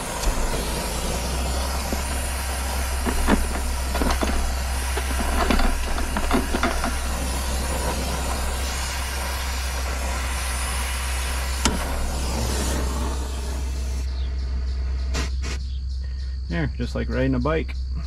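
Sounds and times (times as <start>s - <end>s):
torch flame hissing: 0.0s - 14.1s.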